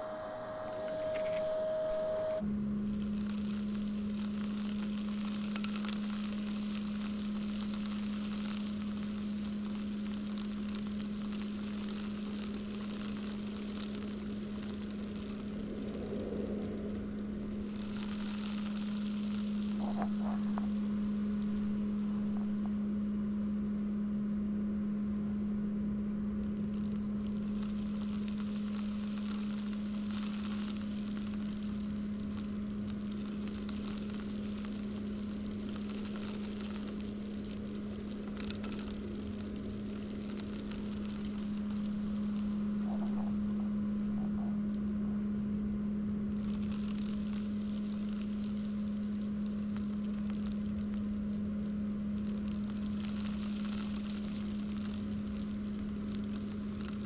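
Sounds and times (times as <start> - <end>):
powder crackling in vacuum nozzle: 0.0 - 2.4, 26.5 - 42.8
vacuum cleaner humming: 0.0 - 2.4.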